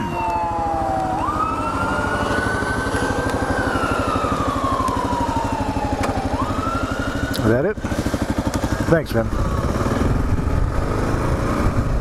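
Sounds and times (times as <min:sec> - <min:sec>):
fire engine siren wailing: 0:00.0 - 0:07.8
motorcycle engine idling: 0:00.4 - 0:12.0.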